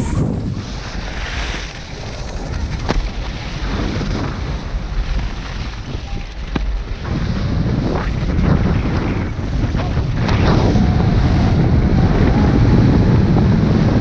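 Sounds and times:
wind rushing over microphone: 0.0 - 14.0
skis swishing on packed snow: 0.1 - 6.0.

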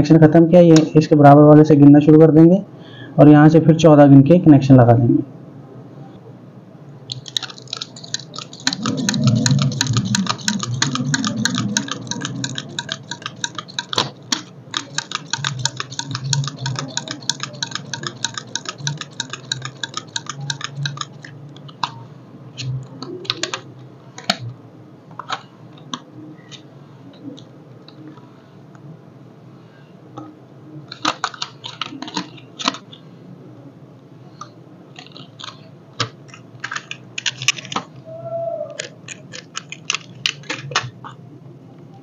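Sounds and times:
wire winding ticks and rasps: 7.1 - 21.8.

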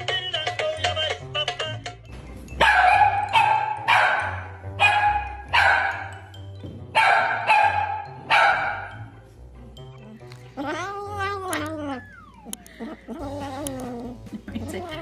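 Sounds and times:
background music with bass line: 0.0 - 15.0
small dog barking: 2.6 - 6.1, 7.0 - 9.0.

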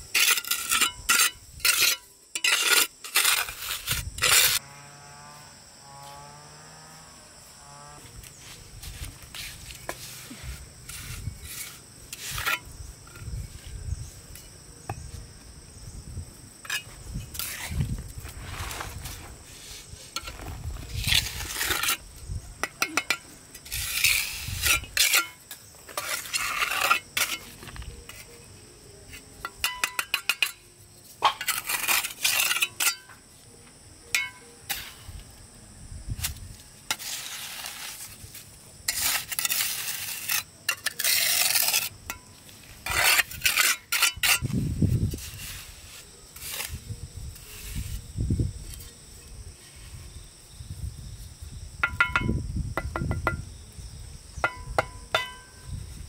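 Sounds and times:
trowel scraping mortar: 0.0 - 4.6, 8.8 - 13.3, 16.6 - 28.4, 31.2 - 33.1, 36.2 - 48.1
trowel clinking against bricks: 22.6 - 28.3, 29.4 - 30.6, 31.2 - 33.2, 34.1 - 34.5, 40.2 - 44.5, 51.8 - 53.4, 54.4 - 55.7.

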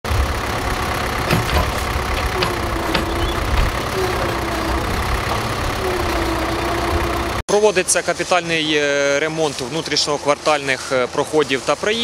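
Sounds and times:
diesel engine running: 0.0 - 7.4.

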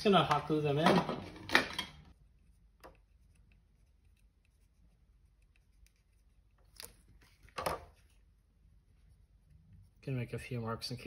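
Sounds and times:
marker pen scratching: 2.2 - 7.4.

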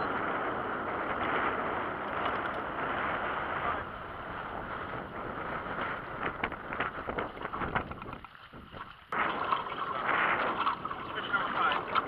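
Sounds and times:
wind buffeting microphone: 0.0 - 12.0
water lapping against hull: 0.2 - 12.0.

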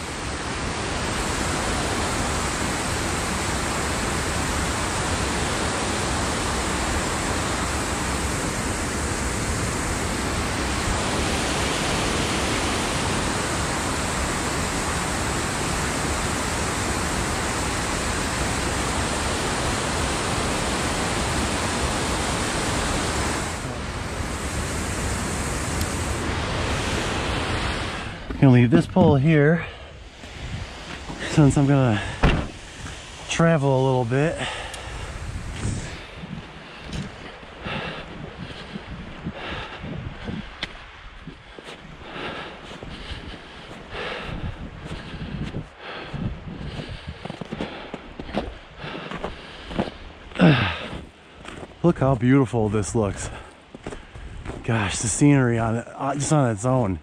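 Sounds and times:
water rushing over waterfall: 0.0 - 29.7, 30.5 - 42.6.

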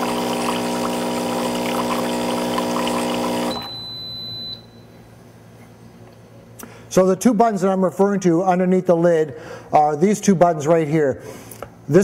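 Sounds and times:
water pouring into a mug: 0.0 - 3.6
coffee machine motor hum: 0.0 - 3.7
high beep: 3.5 - 5.0.

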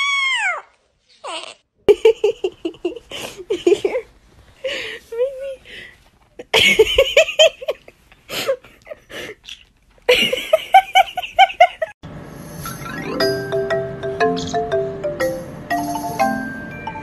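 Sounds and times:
high bouncing giggling laughter: 10.1 - 12.0
light music with chiming notes: 12.6 - 17.0.

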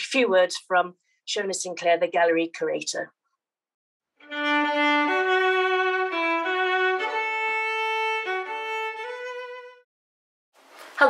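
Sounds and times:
solo fiddle slow melody: 4.2 - 9.9.

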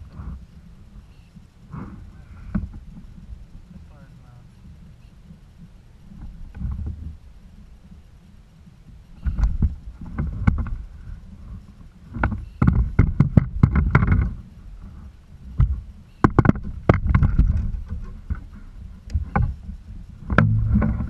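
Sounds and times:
low thumps against hull: 0.0 - 3.9, 8.9 - 21.0
clicks and knocks on kayak: 2.4 - 3.3, 9.2 - 10.8, 12.1 - 14.4, 15.6 - 21.0.

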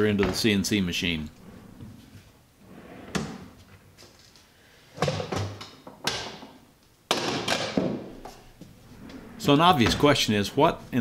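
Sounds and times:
drawer sliding out: 1.4 - 3.8, 8.8 - 10.2.

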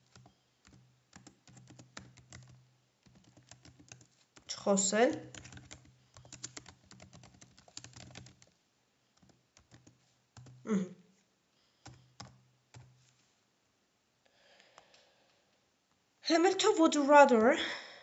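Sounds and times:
keyboard typing: 0.0 - 8.6, 9.2 - 10.8, 11.8 - 13.1
short vocal sound: 10.7 - 11.0.

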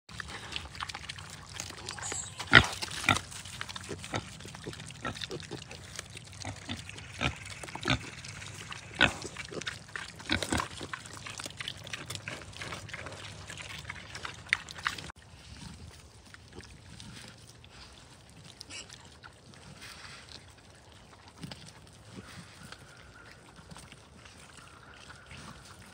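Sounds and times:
pigs crunching food: 0.1 - 25.9
pig grunts: 0.2 - 15.1.

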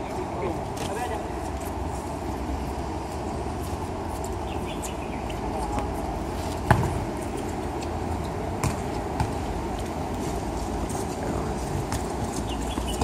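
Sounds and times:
steady background noise: 0.0 - 13.0
ball kicked thud: 6.7 - 7.0.

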